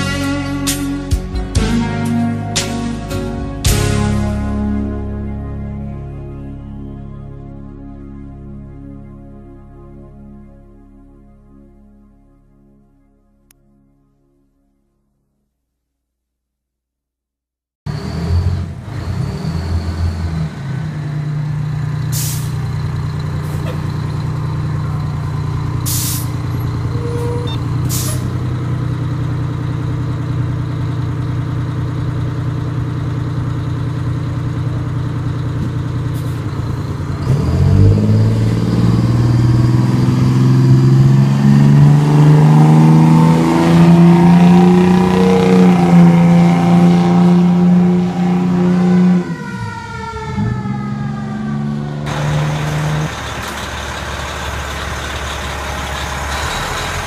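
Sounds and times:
diesel engine idling and revving: 0.0s - 6.9s, 17.9s - 57.0s
air brake hisses: 22.1s - 22.6s, 25.8s - 26.4s, 27.9s - 28.3s.

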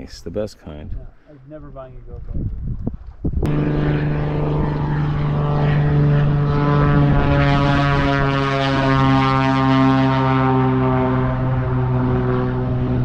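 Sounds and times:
propeller aircraft engine droning: 3.1s - 13.0s.

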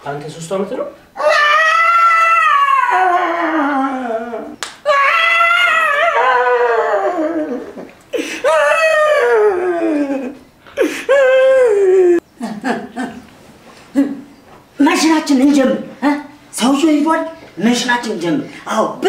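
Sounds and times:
adult wailing like crying baby: 1.2s - 12.2s.

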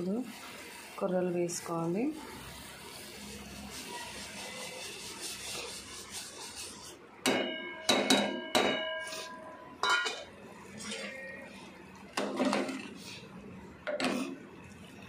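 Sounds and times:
metal clangs against pot: 7.2s - 11.0s, 12.2s - 12.9s.

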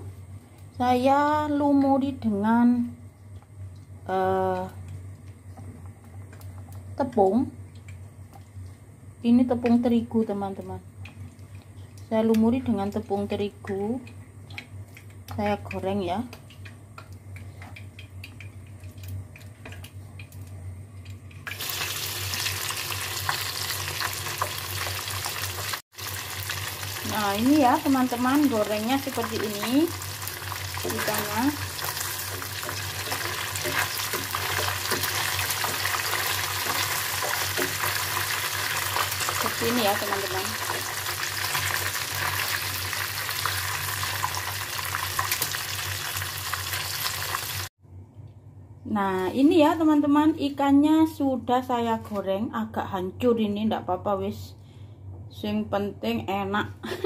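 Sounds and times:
low steady hum: 0.0s - 23.4s, 24.0s - 43.4s, 47.8s - 57.0s
fish deep-frying in hot oil: 9.6s - 47.7s.

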